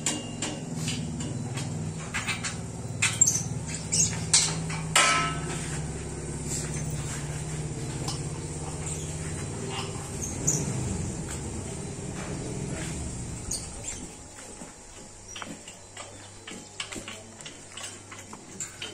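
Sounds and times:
metal clinks and clanks: 0.0 - 11.5, 15.3 - 18.9
low mechanical hum: 0.0 - 18.9.

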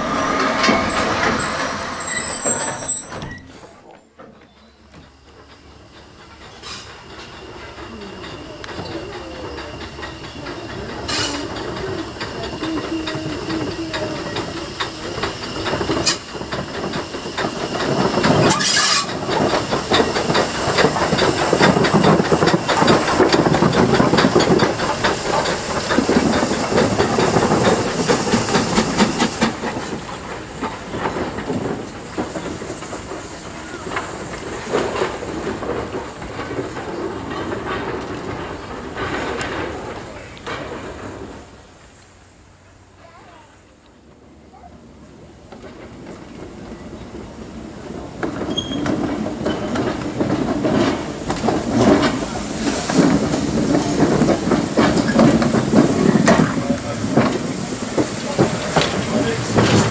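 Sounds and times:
steam locomotive exhaust: 4.7 - 44.0
loud steam hiss burst: 50.0 - 59.9.

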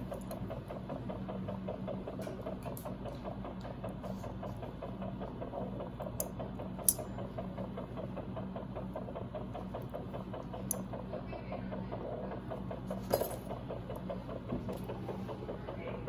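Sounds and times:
pulsing equipment hum: 0.0 - 16.0.

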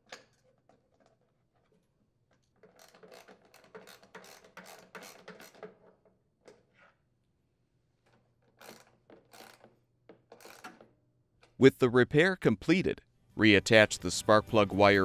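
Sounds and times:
socket ratchet clicking: 2.6 - 5.8, 8.6 - 9.7.

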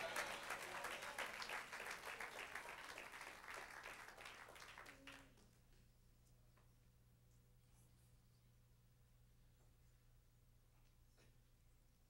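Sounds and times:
congregation applauding: 0.0 - 5.4.

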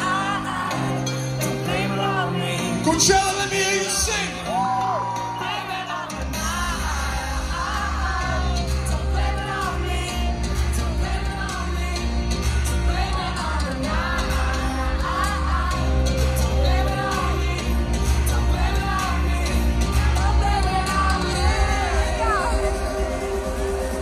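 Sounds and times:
singer's voice: 0.0 - 24.0
heavy bass: 6.3 - 24.0.

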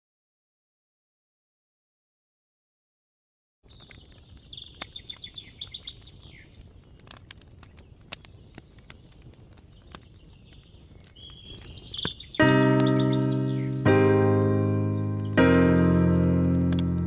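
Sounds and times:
campfire popping and crackling: 3.6 - 17.0.

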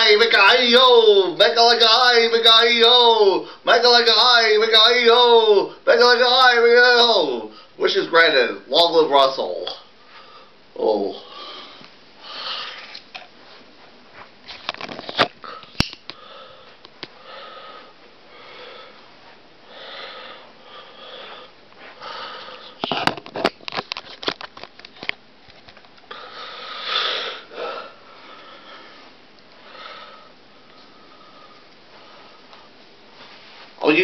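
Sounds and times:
hissing breath: 26.1 - 32.5.

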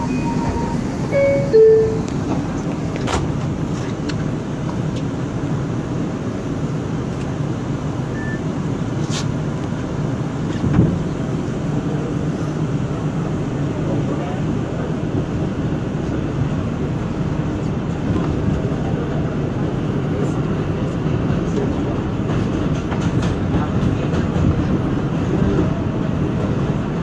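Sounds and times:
two-tone descending door chime: 0.0 - 2.1
subway car hum: 0.0 - 27.0.

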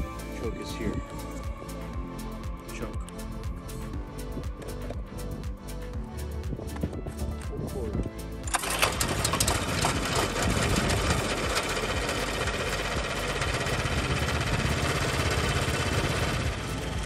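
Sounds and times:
single-cylinder engine running: 8.5 - 17.0.

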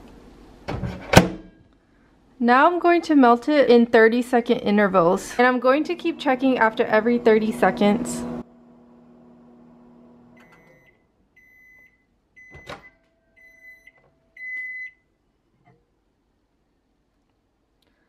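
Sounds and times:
microwave oven humming: 5.3 - 12.6
microwave beeps: 10.3 - 15.1.

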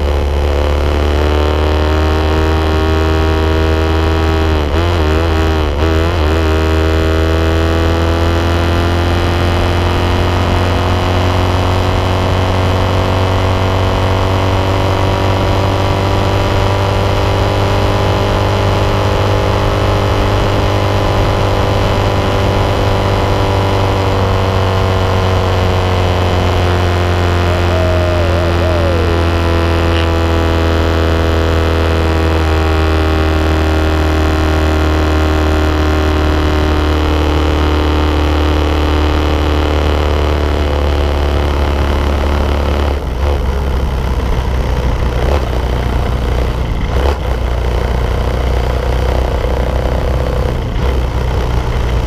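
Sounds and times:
motorcycle engine at high revs: 0.0 - 52.0
low wind rumble: 13.6 - 32.0.

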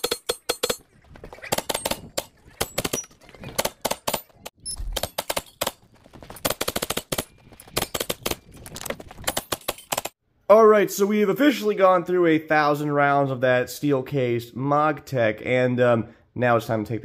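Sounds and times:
rapid gunshots: 6.4 - 8.4.

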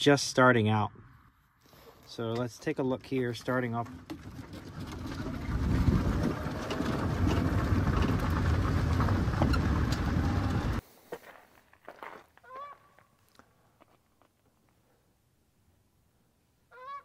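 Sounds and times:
tyres rumbling on gravel: 2.5 - 12.4
wind on microphone: 5.0 - 10.8
goose honking: 12.4 - 12.9, 16.7 - 17.0.

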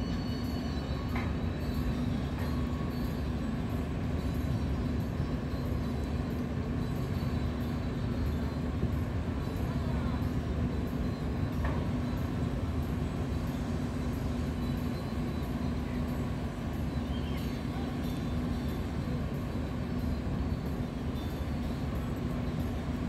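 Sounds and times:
ship engines rumbling: 0.0 - 23.0.

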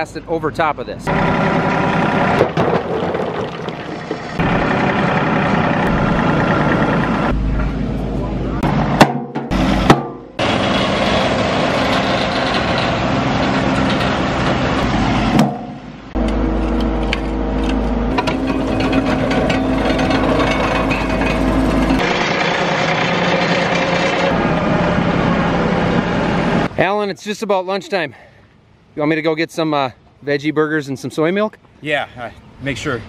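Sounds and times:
tractor engines running: 0.0 - 28.7
dirt and rocks scraping: 2.2 - 7.8, 16.2 - 24.4.

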